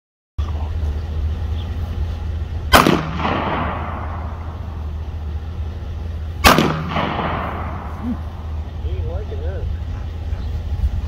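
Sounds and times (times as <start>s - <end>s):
steady low hum: 0.4s - 11.0s
gunshots with echo: 2.7s - 4.8s, 6.4s - 8.5s.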